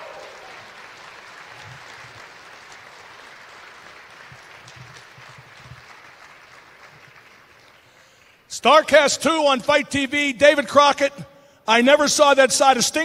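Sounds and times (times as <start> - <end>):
audience applauding: 0.0 - 8.5.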